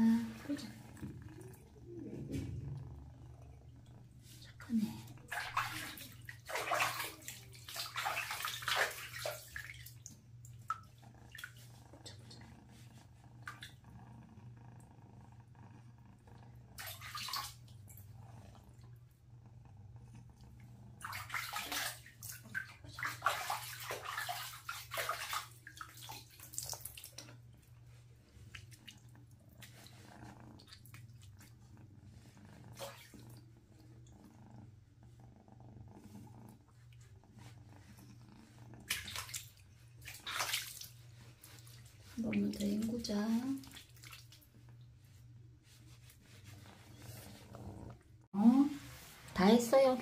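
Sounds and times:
water splashing in a basin: 0:04.5 - 0:12.4, 0:16.8 - 0:18.0, 0:21.0 - 0:27.4, 0:32.7 - 0:33.4, 0:38.8 - 0:44.5.

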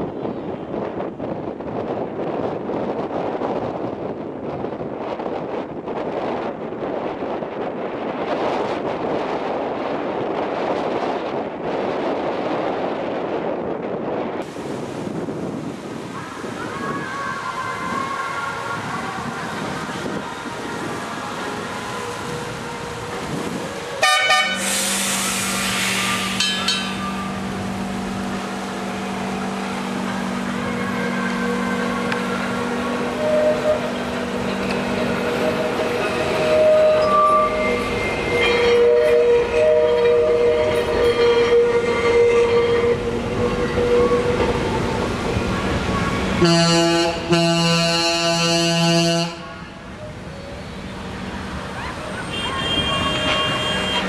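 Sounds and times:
tram horn tooting: 0:16.2 - 0:54.0
loud hiss: 0:23.4 - 0:27.7.

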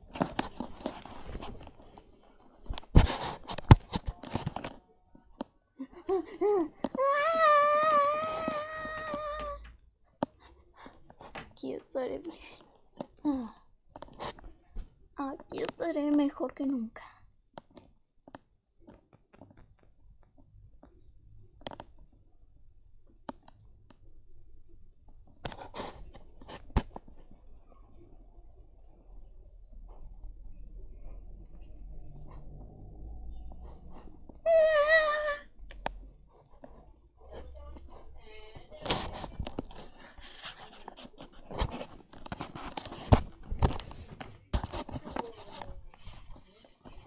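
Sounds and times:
rustling: 0:00.0 - 0:04.9
plush toys rubbing and clicking: 0:00.0 - 0:05.5, 0:06.8 - 0:09.7, 0:33.4 - 0:47.0.

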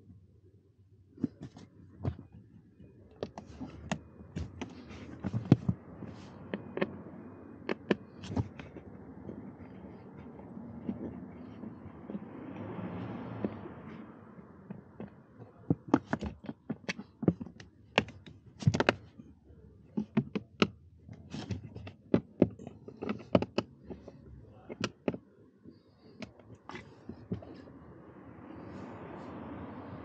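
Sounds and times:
screwdriver clicks and taps on plastic: 0:15.7 - 0:19.0, 0:21.6 - 0:24.1.

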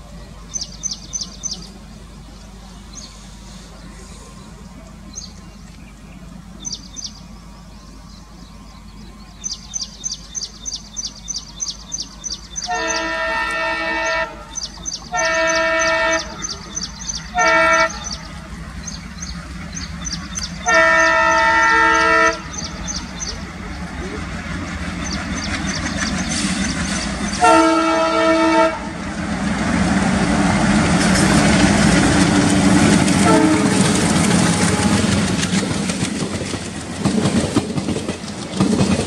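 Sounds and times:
diesel locomotive engine rumble: 0:00.0 - 0:39.0
multi-tone train horn: 0:12.6 - 0:18.6, 0:20.6 - 0:23.0, 0:27.4 - 0:29.1, 0:33.1 - 0:35.4.

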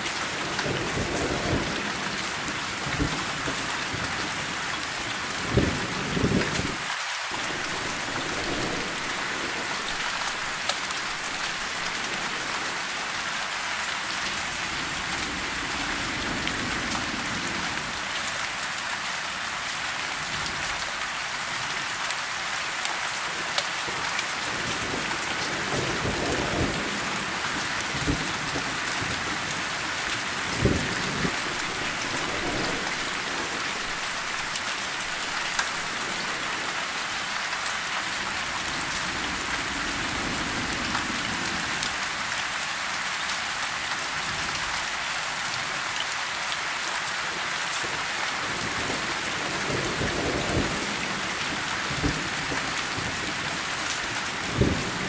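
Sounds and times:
steady rain falling: 0:00.0 - 0:55.0
low rumbles of thunder: 0:05.4 - 0:06.8, 0:07.4 - 0:12.7, 0:24.5 - 0:36.7, 0:48.5 - 0:55.0.

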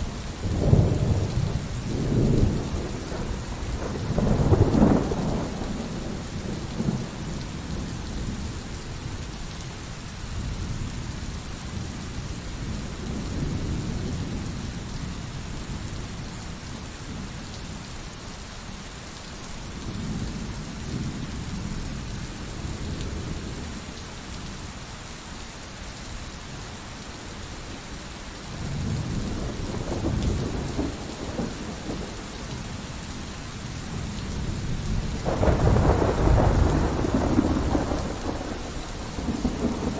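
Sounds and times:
rain hissing: 0:00.0 - 0:39.9
thunder rolling: 0:35.2 - 0:39.9.

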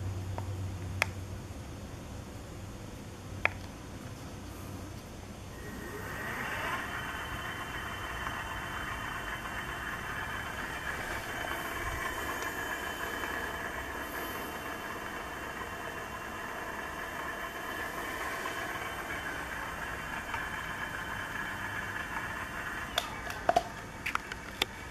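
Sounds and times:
hub motor whine: 0:00.0 - 0:24.9.

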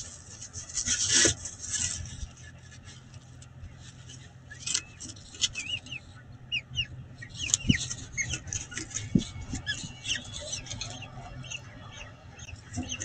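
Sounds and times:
scratching on gravel: 0:00.0 - 0:06.0
low steady hum: 0:00.0 - 0:13.0
bird chirping: 0:04.2 - 0:13.0.

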